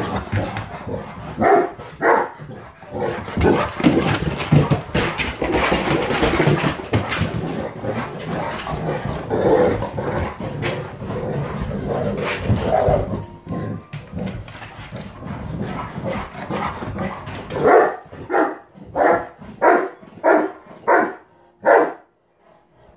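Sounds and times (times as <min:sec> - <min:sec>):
dogs playing and scuffling: 0:00.0 - 0:21.3
dog barking: 0:01.4 - 0:02.4, 0:17.6 - 0:22.1.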